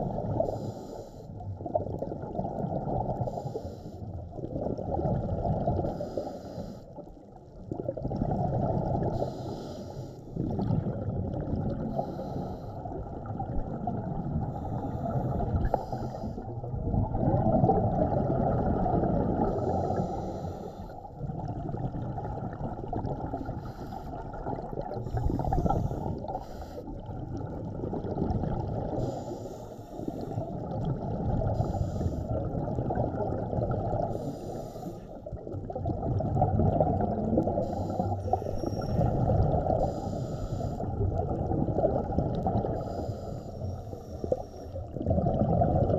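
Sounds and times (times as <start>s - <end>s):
bubbling gurgle on exhale: 0.0s - 0.6s, 1.3s - 9.6s, 10.3s - 45.9s
regulator hiss on inhale: 0.4s - 1.4s, 3.2s - 4.2s, 5.8s - 7.0s, 9.1s - 10.4s, 11.8s - 13.0s, 14.4s - 16.6s, 19.4s - 21.2s, 23.4s - 27.1s, 28.9s - 30.7s, 31.4s - 32.4s, 34.0s - 35.4s, 37.5s - 41.0s, 42.6s - 45.0s.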